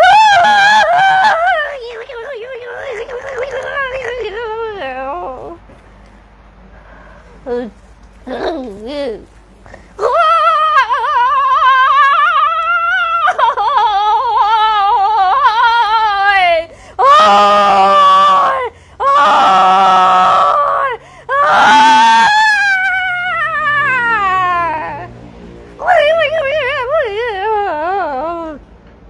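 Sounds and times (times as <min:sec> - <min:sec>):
woman wailing and screaming: 0:00.0 - 0:05.0, 0:10.0 - 0:25.1, 0:25.8 - 0:28.6.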